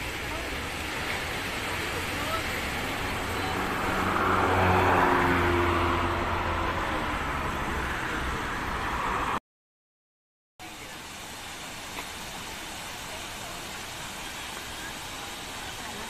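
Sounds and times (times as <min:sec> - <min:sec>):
vehicle passing on road: 0:00.0 - 0:09.4.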